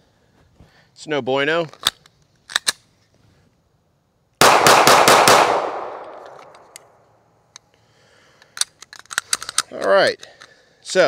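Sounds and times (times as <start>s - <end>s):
pistol shots with echo: 4.4s - 6.6s.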